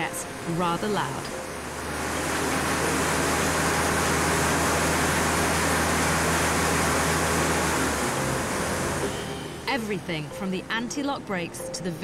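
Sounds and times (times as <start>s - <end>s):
tractor engine and tyres on rollers: 0.0s - 10.2s.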